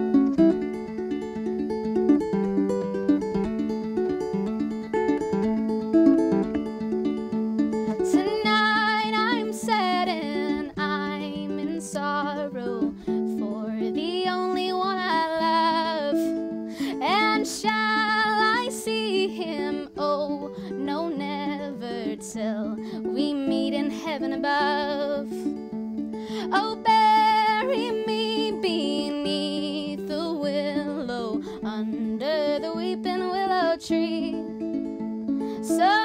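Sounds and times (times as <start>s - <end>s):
plucked ukulele: 0.0s - 36.0s
woman singing a slow ballad: 8.1s - 25.5s, 26.4s - 34.4s, 35.6s - 36.0s.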